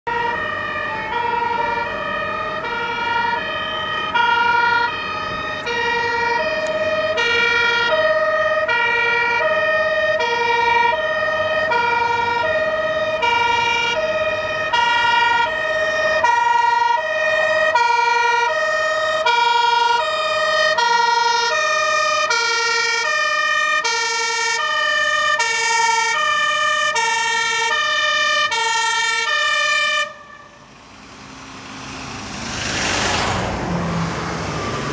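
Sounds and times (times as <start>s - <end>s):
fire engine two-tone siren: 0.0s - 34.9s.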